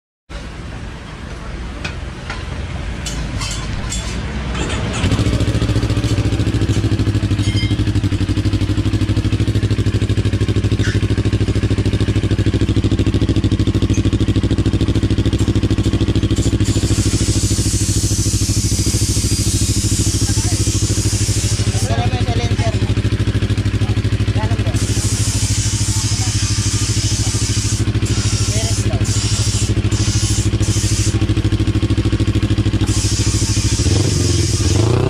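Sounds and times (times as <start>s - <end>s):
motorcycle engine running: 3.5s - 35.0s
hiss: 16.4s - 21.9s, 24.8s - 31.2s, 32.8s - 34.8s.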